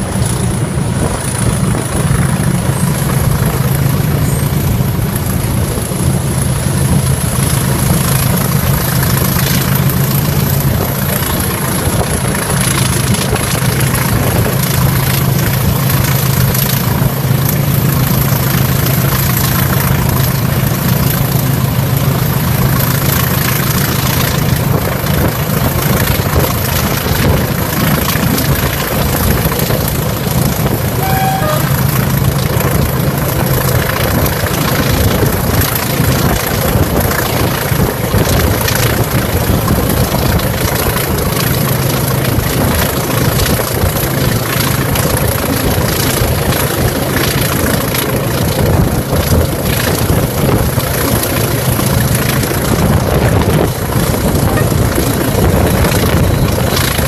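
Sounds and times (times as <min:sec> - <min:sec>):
diesel locomotive engine drone: 0:00.0 - 0:57.0
wheels on rails: 0:00.0 - 0:57.0
wind rush: 0:00.0 - 0:57.0
thin high whistle: 0:31.0 - 0:31.8.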